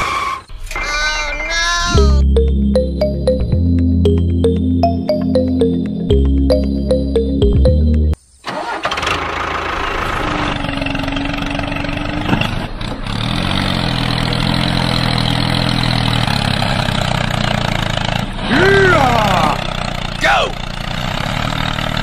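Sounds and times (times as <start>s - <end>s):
music: 1.9s - 8.2s
tractor engine running: 2.0s - 22.0s.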